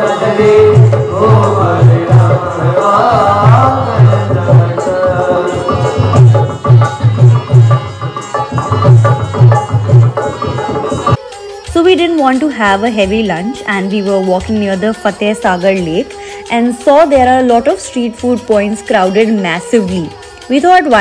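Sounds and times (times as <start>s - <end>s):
person singing: 0.0s - 7.6s
harmonium: 0.0s - 21.0s
hand drum beating: 0.8s - 11.8s.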